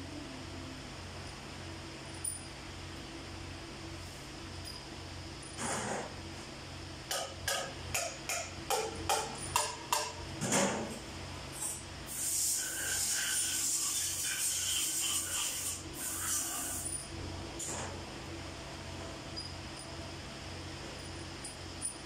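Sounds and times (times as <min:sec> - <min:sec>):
fans humming: 0:00.0 - 0:22.0
sharp metal taps: 0:07.1 - 0:10.2.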